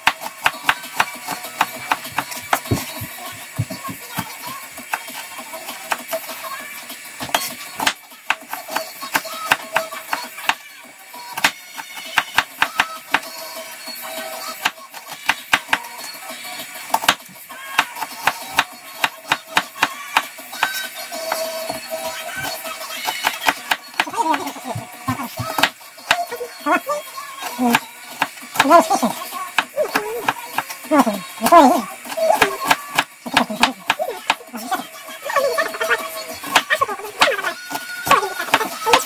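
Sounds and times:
knife chopping on plastic board: 0.0s - 5.1s, 11.4s - 13.3s, 16.9s - 17.2s, 17.8s - 26.3s
quiet background music: 0.0s - 39.0s.

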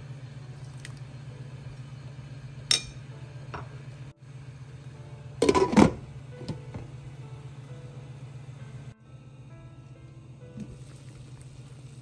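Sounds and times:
steady low hum: 0.0s - 12.0s
plate and pot clinking: 2.7s - 3.0s, 5.4s - 6.0s.

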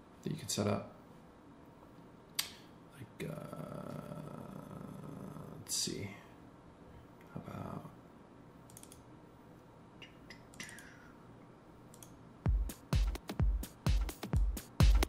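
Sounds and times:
computer mouse clicks: 8.7s - 9.1s, 10.0s - 11.0s, 11.9s - 12.2s
techno drum loop: 12.4s - 15.0s.

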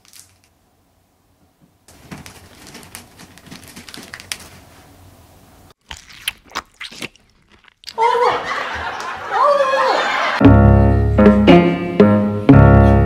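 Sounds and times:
faint handling sounds: 1.4s - 5.3s.

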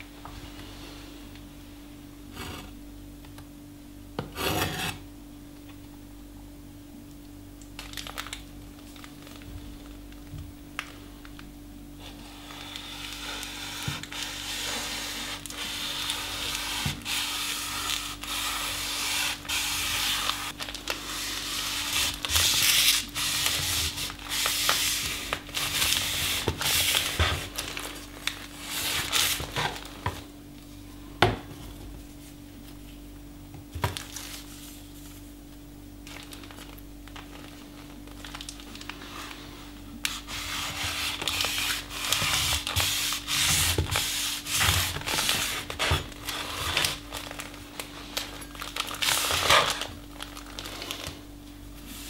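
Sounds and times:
steady low hum: 0.0s - 52.0s
rasp of cut paper: 4.4s - 5.0s, 12.0s - 27.4s, 40.1s - 46.9s.

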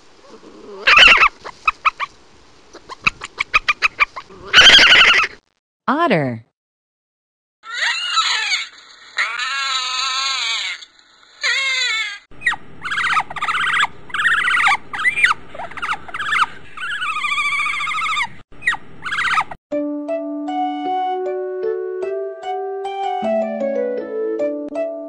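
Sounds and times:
otter squealing and chirping: 0.8s - 2.1s, 2.7s - 5.4s, 7.7s - 19.6s.

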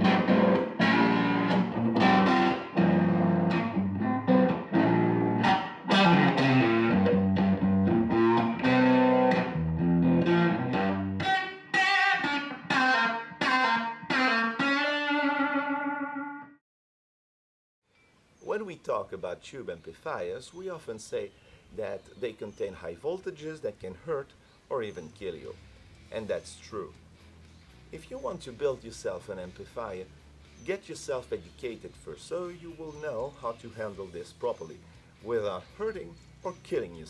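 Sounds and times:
electric guitar playing: 0.0s - 16.6s.

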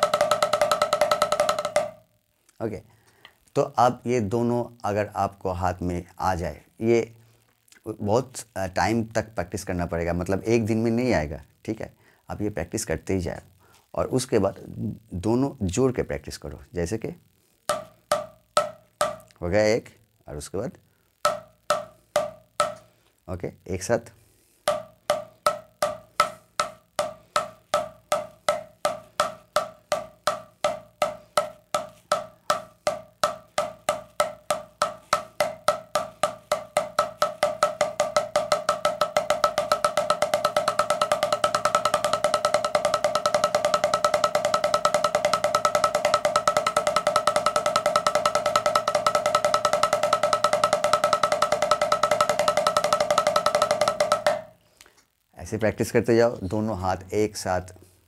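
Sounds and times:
drumsticks on practice pad: 0.0s - 2.1s, 17.6s - 19.4s, 21.1s - 23.0s, 24.6s - 54.6s.

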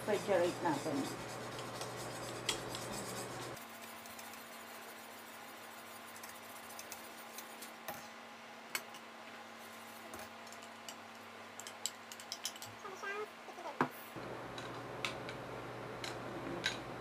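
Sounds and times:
whisk clicking against metal pot: 0.1s - 4.4s.

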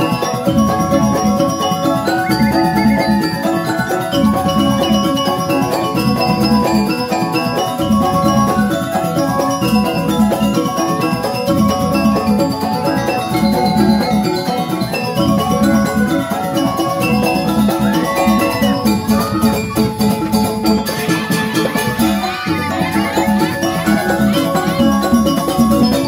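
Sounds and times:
bamboo xylophones fast runs: 0.0s - 26.0s
hand drums: 0.0s - 26.0s.

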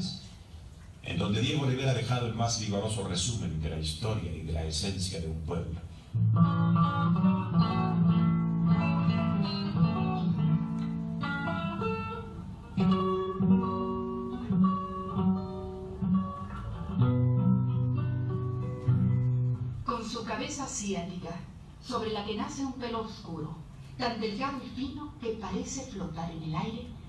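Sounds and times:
acoustic guitar chords: 6.1s - 19.8s.

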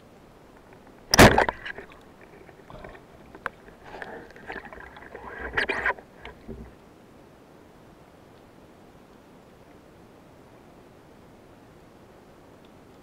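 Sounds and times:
rattling and scraping underwater: 0.6s - 6.8s
underwater speargun thump: 1.1s - 1.9s, 6.2s - 6.8s.

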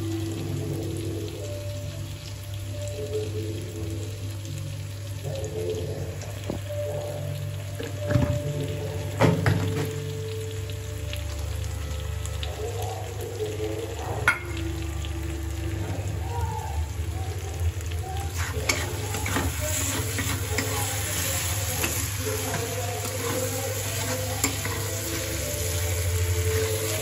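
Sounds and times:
food sizzling in oil: 0.0s - 27.0s
metal spatula scraping pan: 18.3s - 25.5s.

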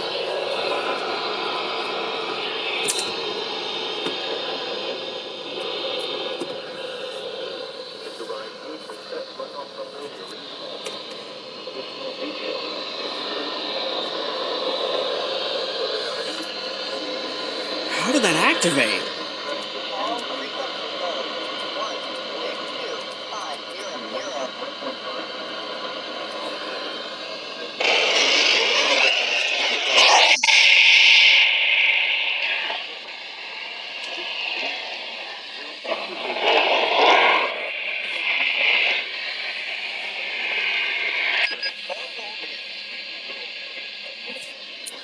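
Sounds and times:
radio voice through small speaker: 17.9s - 19.1s.

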